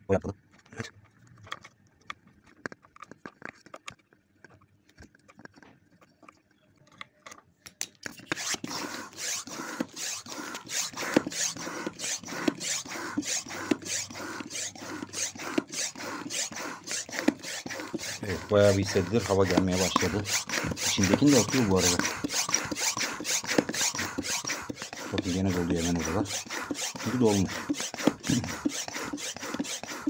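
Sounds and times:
hand pump rasping air: 0:08.0 - 0:30.0.

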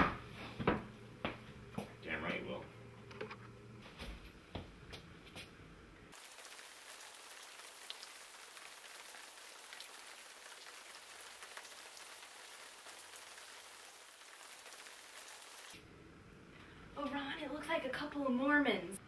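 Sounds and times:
rain hiss: 0:06.1 - 0:15.8
rain drops ticking: 0:06.2 - 0:15.7.

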